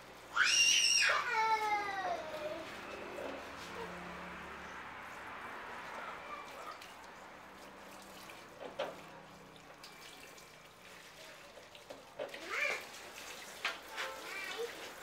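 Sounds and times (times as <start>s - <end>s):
wet cloth scrubbed and wrung: 5.0s - 15.0s
water splashing in a sink: 5.2s - 15.0s.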